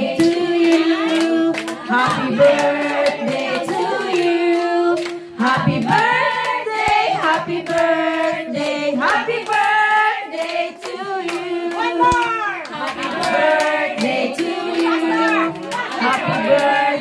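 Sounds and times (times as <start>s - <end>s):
group singing: 0.0s - 17.0s
hands clapping in time: 9.4s - 16.8s.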